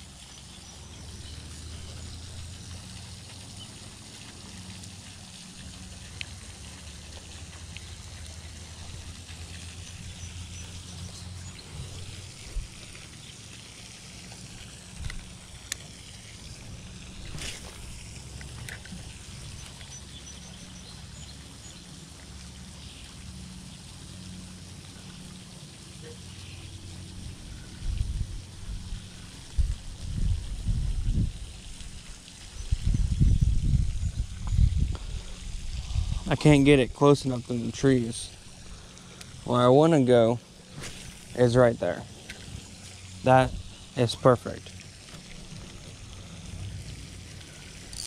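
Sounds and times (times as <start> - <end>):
pond fountain splashing: 0.0 - 48.0.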